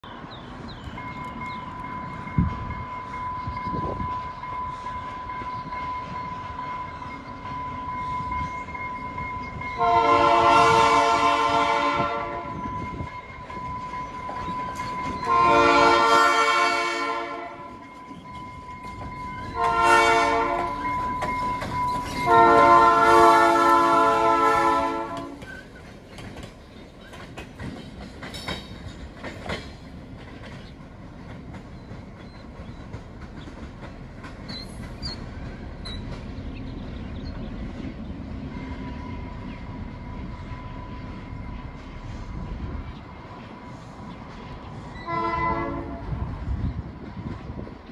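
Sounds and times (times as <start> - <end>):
locomotive engine rumble: 0.1 - 47.9
locomotive horn blasts: 9.8 - 12.8, 15.2 - 17.8, 19.5 - 21.2, 21.9 - 25.4, 45.0 - 46.2
train wheels clicking over rails: 17.7 - 24.3, 25.0 - 45.4.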